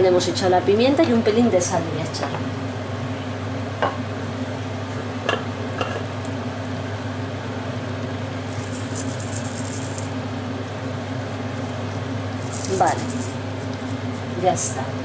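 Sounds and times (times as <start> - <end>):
onions bubbling in a pan: 2.5 - 14.9.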